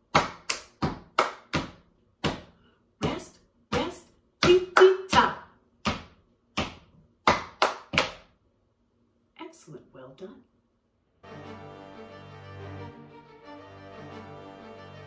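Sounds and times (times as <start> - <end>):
hand claps: 0.0 - 2.6, 4.4 - 8.3.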